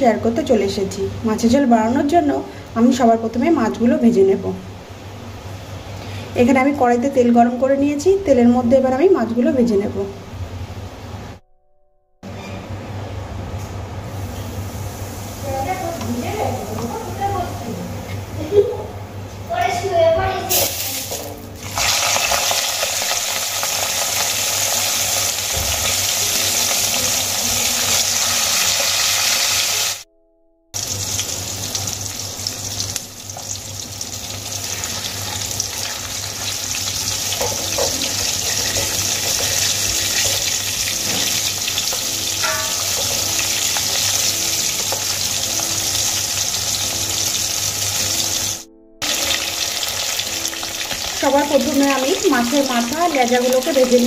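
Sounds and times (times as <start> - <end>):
fish sizzling in hot oil: 20.5 - 30.0, 30.8 - 54.0.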